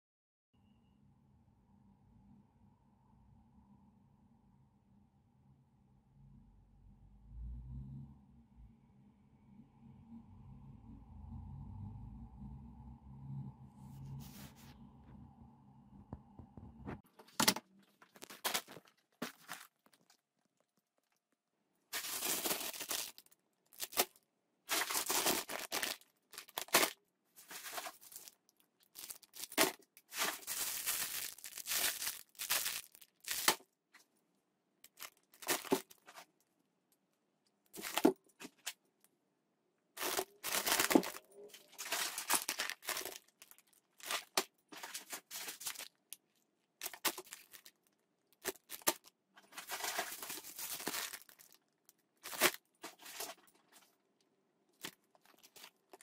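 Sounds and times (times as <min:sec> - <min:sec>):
plastic packaging crinkling: 0:17.2 - 0:21.2, 0:21.9 - 0:33.6, 0:34.9 - 0:36.2, 0:37.8 - 0:38.7, 0:40.0 - 0:53.9, 0:54.8 - 0:56.0.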